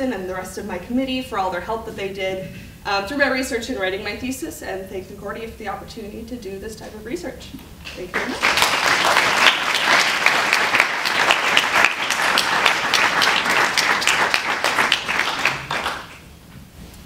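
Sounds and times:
audience applauding: 8.1 - 16.3.

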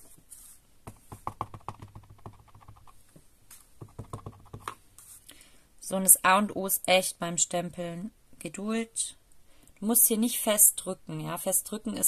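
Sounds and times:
stamp block tapping ink pad: 0.9 - 2.9, 3.8 - 4.8.

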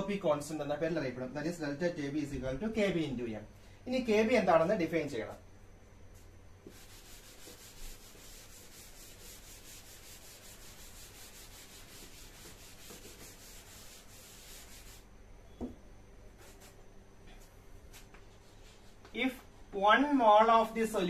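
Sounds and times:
duster rubbing on blackboard: 6.6 - 15.1, 16.4 - 16.8.

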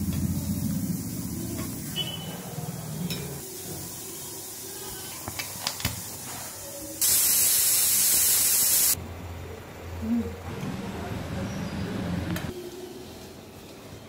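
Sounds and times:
steam hissing: 0.0 - 5.3, 6.0 - 9.0.

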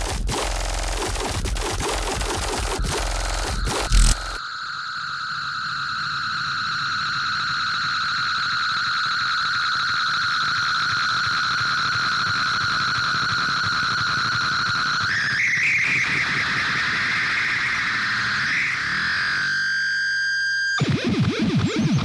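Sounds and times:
high synthesized tone: 2.5 - 4.4.

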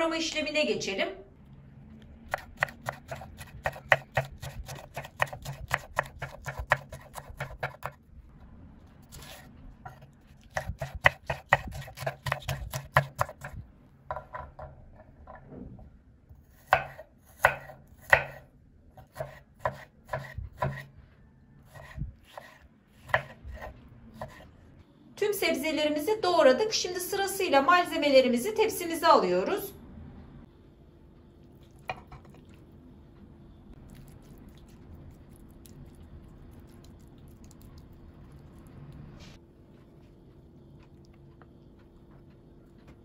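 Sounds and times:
knife chopping on wooden board: 2.3 - 8.0, 9.1 - 15.4, 16.5 - 18.4, 19.0 - 20.9, 21.7 - 24.5.

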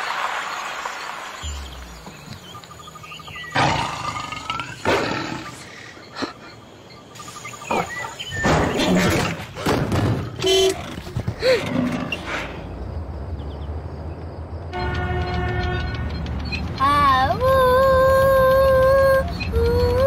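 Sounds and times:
car horn toot: 10.4 - 10.9, 14.7 - 16.0.

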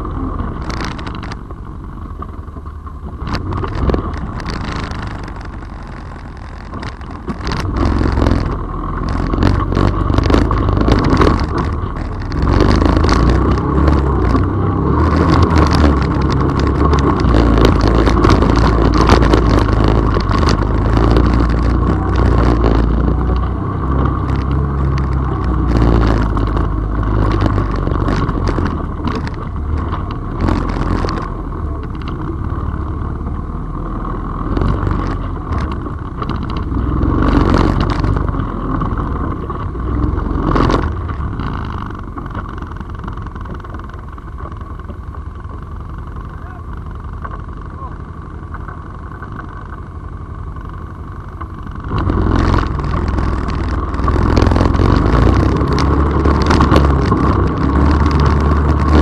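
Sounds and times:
knocks and rattles from bumps: 2.2 - 33.6
dirt bike engine revving: 3.3 - 33.2, 51.7 - 59.0.

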